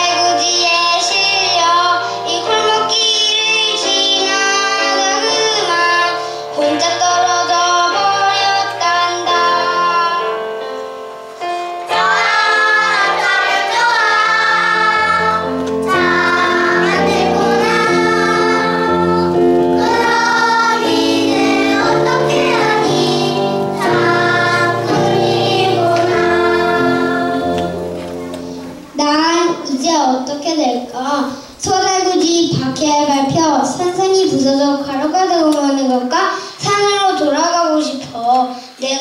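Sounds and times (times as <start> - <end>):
child singing: 0.0 - 10.4, 11.9 - 28.3, 29.0 - 39.0
instrumental accompaniment: 0.0 - 30.3.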